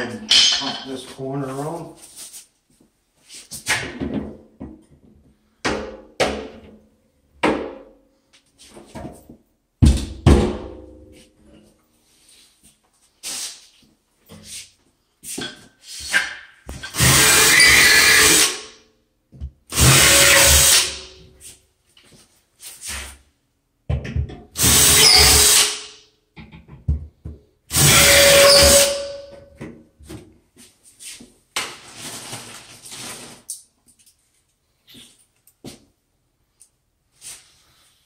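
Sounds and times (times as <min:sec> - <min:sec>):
cordless drill driving screws: 0:16.9 - 0:18.6, 0:19.7 - 0:21.0, 0:24.6 - 0:25.8, 0:27.7 - 0:29.1.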